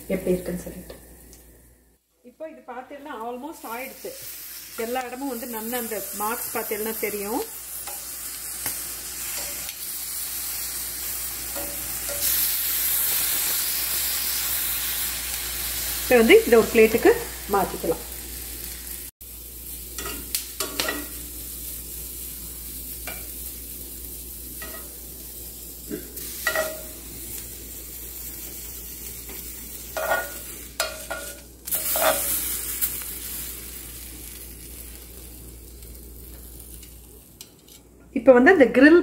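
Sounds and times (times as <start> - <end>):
vegetables sizzling on grill pan: 2.6 - 37.7
metal tongs clinking: 20.0 - 21.2, 26.4 - 26.9, 30.0 - 32.4.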